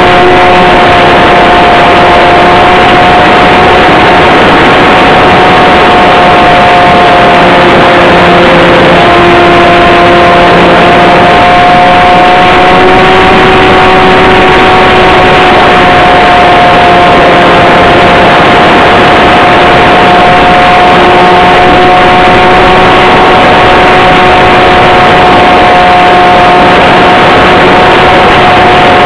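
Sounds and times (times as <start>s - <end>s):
model airplane motor droning: 0.0s - 29.0s
wind rush: 0.0s - 29.0s.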